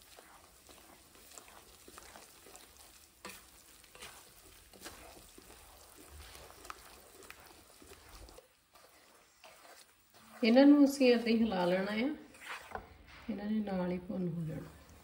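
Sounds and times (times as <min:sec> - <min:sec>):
spatula scraping a steel pan: 0:00.0 - 0:13.0.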